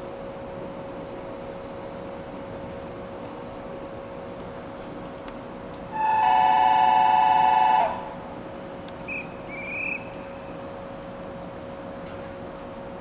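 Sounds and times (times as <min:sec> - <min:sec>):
two-tone train horn: 0:05.9 - 0:08.2.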